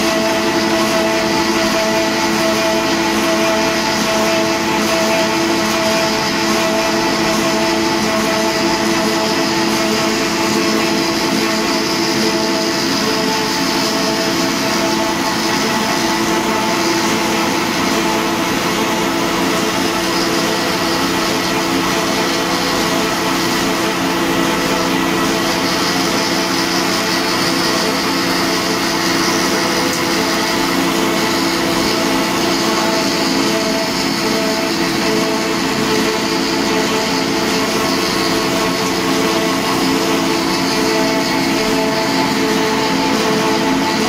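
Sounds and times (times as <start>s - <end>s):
extruder machine drone: 0.0s - 44.0s.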